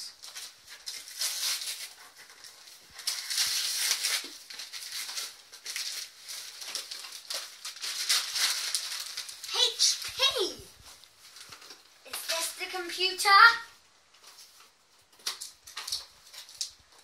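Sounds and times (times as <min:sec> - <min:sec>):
wrapping paper tearing: 0:00.0 - 0:13.2.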